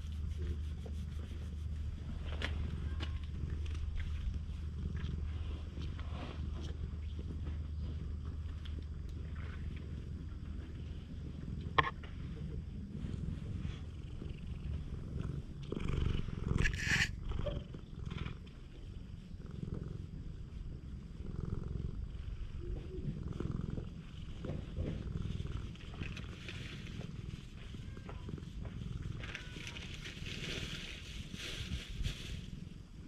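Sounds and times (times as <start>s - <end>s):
brushing rustle on microphone: 0.0s - 2.8s, 16.5s - 17.2s, 25.2s - 32.7s
cat purring: 0.0s - 33.0s.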